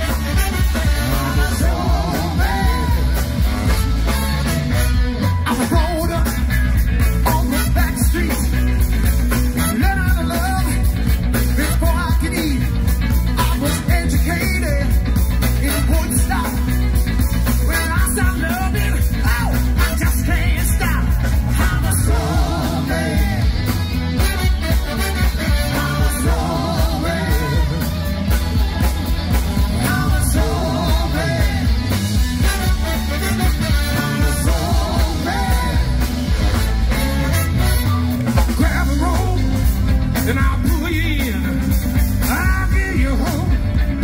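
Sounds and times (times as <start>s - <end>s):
saxophone horn section: 0.0s - 5.5s, 21.5s - 38.6s
lead singer: 0.0s - 37.6s, 38.3s - 44.0s
drums: 0.0s - 44.0s
heavy bass: 0.0s - 44.0s
keyboard: 0.0s - 44.0s
backing singers: 0.8s - 3.7s, 20.3s - 24.0s, 25.3s - 32.2s, 33.4s - 36.8s.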